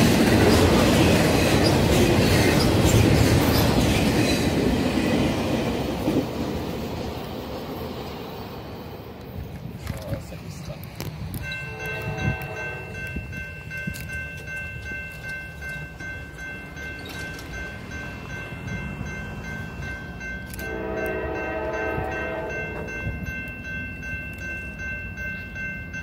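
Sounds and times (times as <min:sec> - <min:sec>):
diesel train rumble: 0:00.0 - 0:26.0
crossing warning bell ringing: 0:11.1 - 0:26.0
train horn blast: 0:11.6 - 0:13.2, 0:20.5 - 0:23.0.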